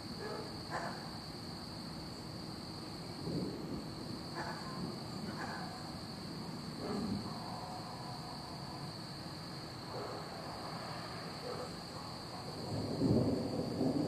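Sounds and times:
night insects chorus: 0:00.0 - 0:14.0
distant thunder rumbling: 0:03.2 - 0:07.3, 0:12.5 - 0:14.0.

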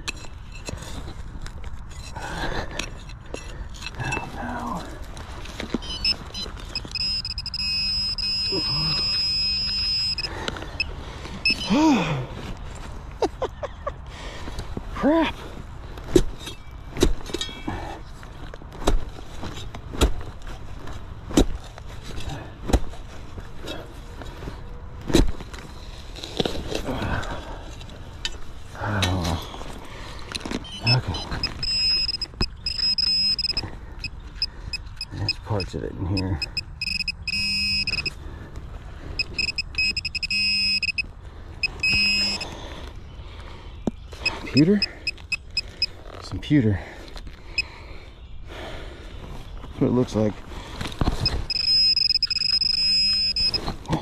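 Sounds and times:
pinpointer beeping: 0:05.8 - 0:11.8, 0:30.6 - 0:38.1, 0:39.2 - 0:42.5, 0:44.2 - 0:45.9, 0:51.2 - 0:53.6
scraping soil and leaves: 0:18.7 - 0:31.4.

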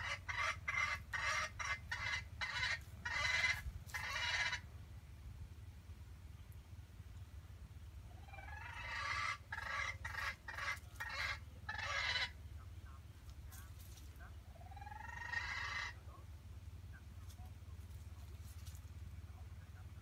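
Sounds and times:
junglefowl calling: 0:00.0 - 0:04.7, 0:08.1 - 0:12.5, 0:14.2 - 0:16.2.

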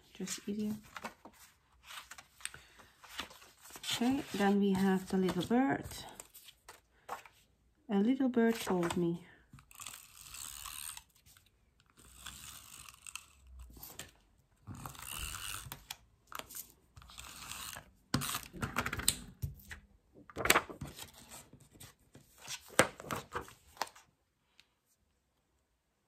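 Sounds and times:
paper rustling and clicks: 0:18.2 - 0:21.2.

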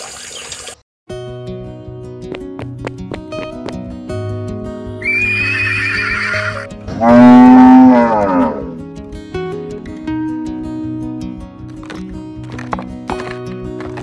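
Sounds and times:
guitar music: 0:01.1 - 0:14.0
horse whinnying: 0:05.0 - 0:08.7
cow mooing: 0:05.0 - 0:08.8.

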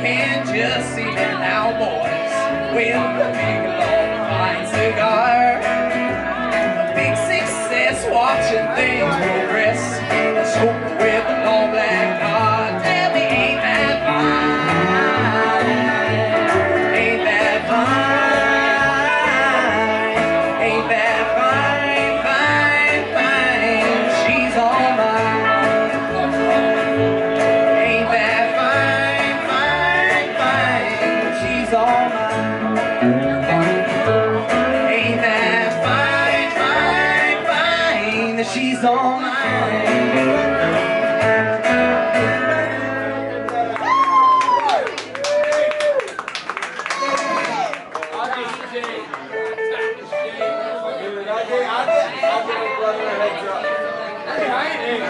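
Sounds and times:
upright bass: 0:00.0 - 0:45.5
electric guitar: 0:00.0 - 0:46.2, 0:49.1 - 0:51.0.

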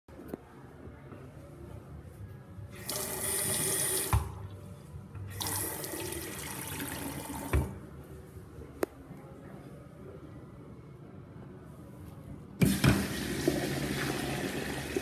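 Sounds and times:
water running into sink: 0:12.6 - 0:15.0.

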